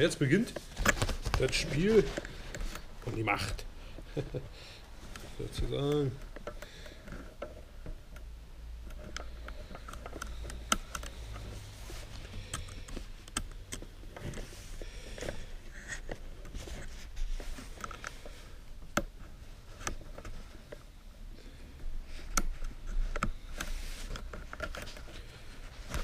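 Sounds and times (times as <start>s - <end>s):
umbrella fabric rustling: 0.4s - 3.6s.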